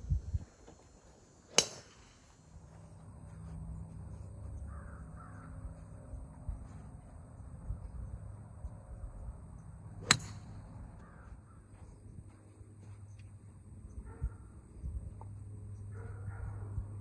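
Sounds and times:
golf driver striking ball: 0:01.5 - 0:02.0, 0:10.0 - 0:10.4.

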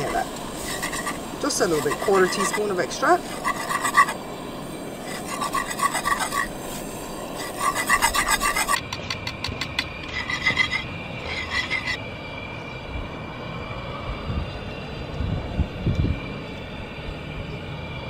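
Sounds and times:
whisk scraping a metal pan: 0:00.0 - 0:04.2, 0:05.0 - 0:08.8, 0:09.7 - 0:12.0.

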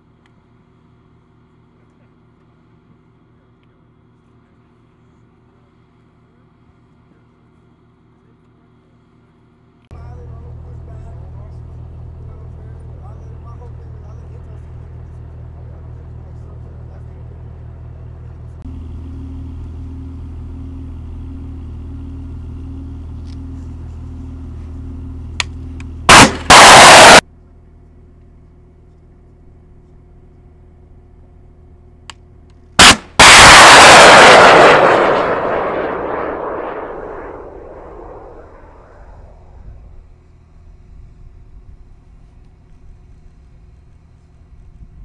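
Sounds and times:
diesel engine running: 0:10.0 - 0:33.8
launch motor crack: 0:26.1 - 0:27.2, 0:32.8 - 0:39.6
missile flight motor blast: 0:26.1 - 0:27.2, 0:32.8 - 0:39.9.

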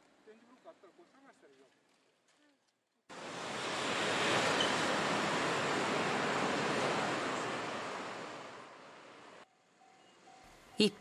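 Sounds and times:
loud rushing noise: 0:03.1 - 0:09.4.

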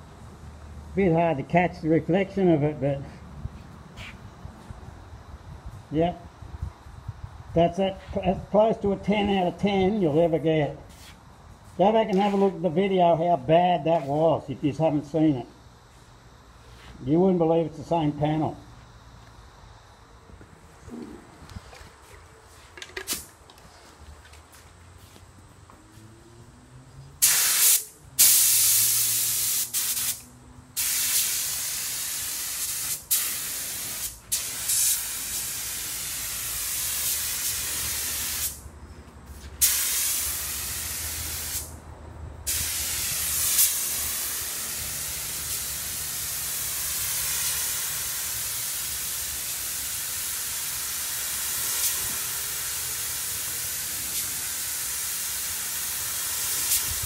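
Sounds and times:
paint spray gun hissing: 0:27.2 - 0:38.6, 0:39.3 - 0:41.8, 0:42.5 - 0:57.0.

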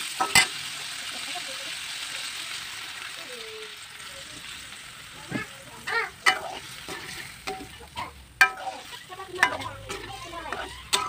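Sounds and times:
light sizzle: 0:00.0 - 0:11.0
metal spatula clinking on wok: 0:06.2 - 0:11.0.

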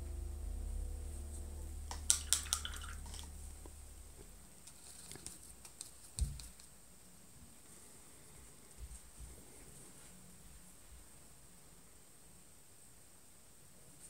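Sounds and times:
brush clicking against cup: 0:01.9 - 0:03.3
brush ticking on paint pans: 0:01.9 - 0:03.3
paintbrush rinsed in water: 0:01.9 - 0:03.7.

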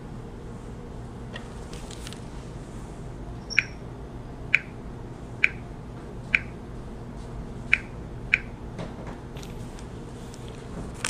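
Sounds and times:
key-press clicks: 0:03.5 - 0:03.8.

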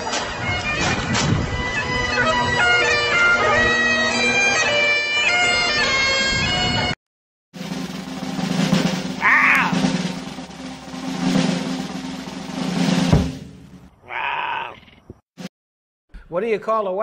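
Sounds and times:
bagpipe melody over drone: 0:00.0 - 0:06.9.

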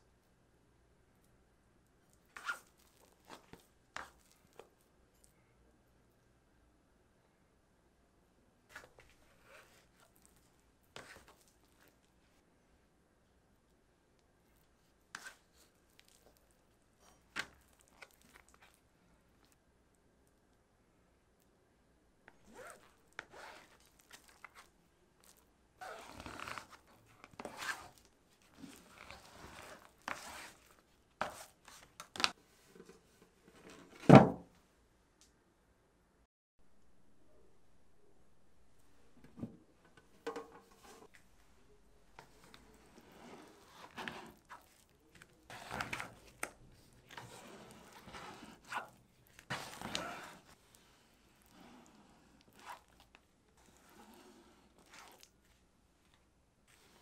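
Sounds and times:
rustling and crinkling: 0:02.0 - 0:05.4, 0:08.7 - 0:12.4, 0:14.4 - 0:19.6, 0:22.3 - 0:34.6, 0:39.2 - 0:57.0.

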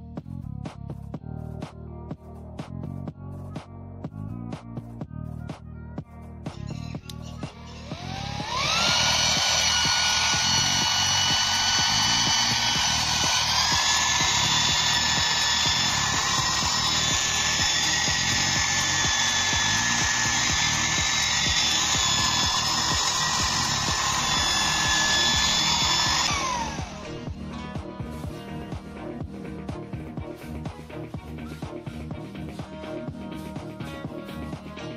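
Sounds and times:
vacuum motor whining: 0:07.6 - 0:27.7.

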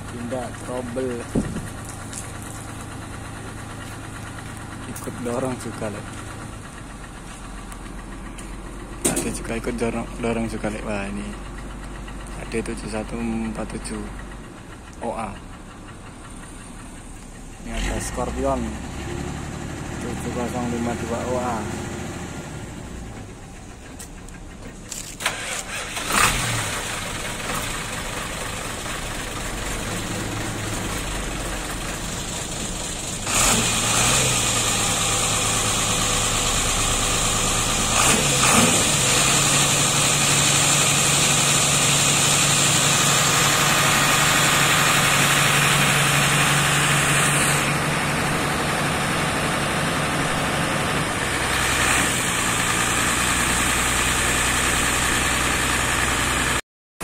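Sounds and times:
diesel bus engine idling: 0:00.0 - 0:56.6.

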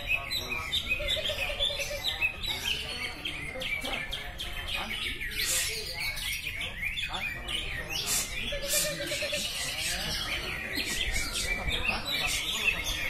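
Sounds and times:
birds chirping and trilling: 0:00.0 - 0:13.0.

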